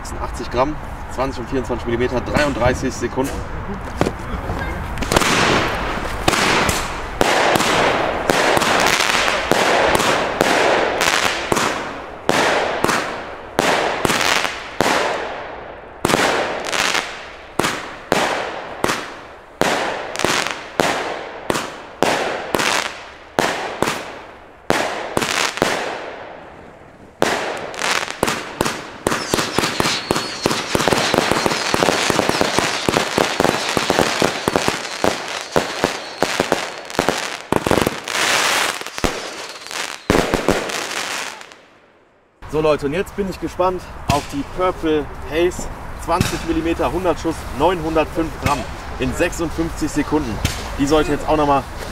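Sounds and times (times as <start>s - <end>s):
firework battery shots banging: 5.0s - 26.5s, 27.2s - 41.6s, 44.1s - 44.5s, 46.1s - 46.8s.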